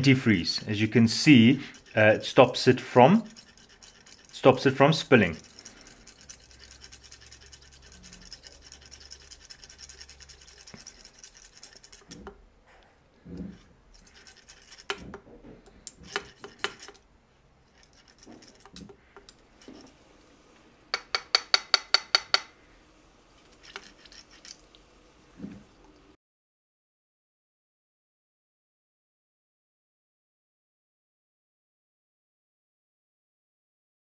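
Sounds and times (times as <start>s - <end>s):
steady buzzing hiss: 16.0s - 26.2s
screwdriver clicks and taps: 21.0s - 22.5s.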